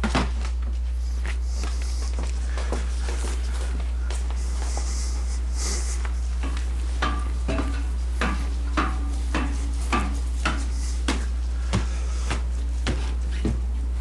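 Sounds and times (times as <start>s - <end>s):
low electrical hum: 0.0s - 14.0s
footsteps on metal ladder: 6.0s - 13.8s.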